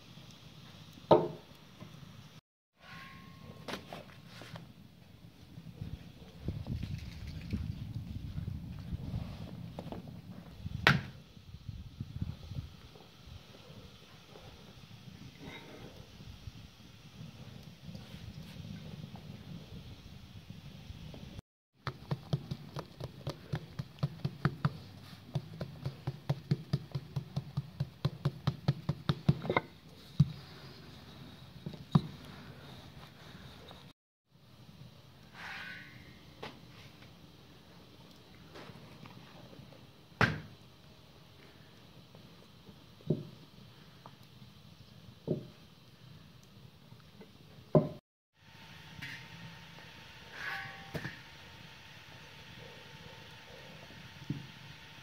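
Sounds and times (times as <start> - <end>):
fingertips patting dough: 21.8 - 29.6.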